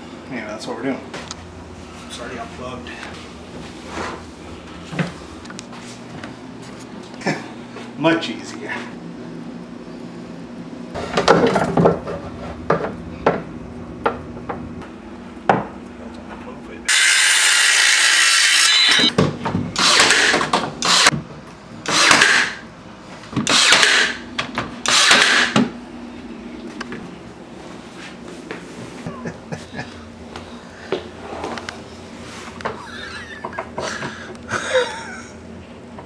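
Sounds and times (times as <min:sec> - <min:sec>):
power tool running: 0:16.9 - 0:19.1, 0:19.8 - 0:21.2, 0:21.8 - 0:22.6, 0:23.4 - 0:25.7.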